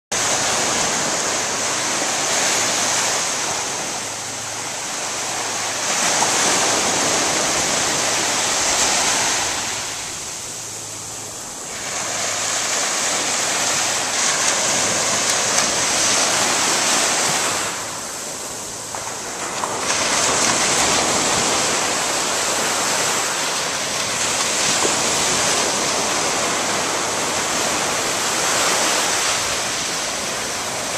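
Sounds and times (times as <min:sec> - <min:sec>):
ocean surf breaking on sand: 0:00.2 - 0:30.9.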